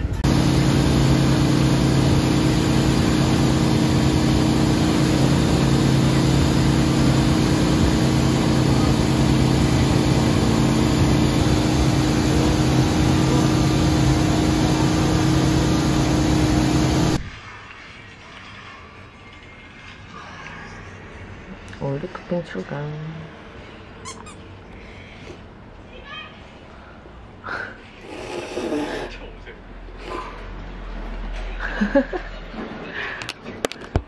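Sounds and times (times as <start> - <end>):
boat engine running: 0.0 - 17.2
churning wake: 0.0 - 17.2.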